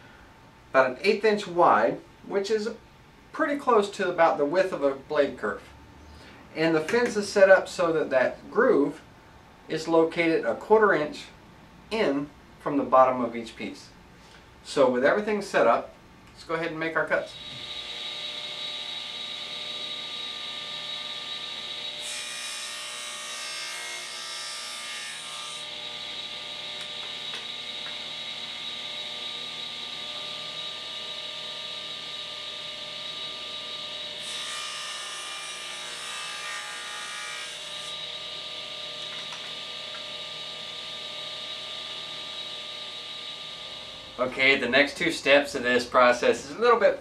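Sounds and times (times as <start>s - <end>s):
table saw whine: 17.0s - 46.8s.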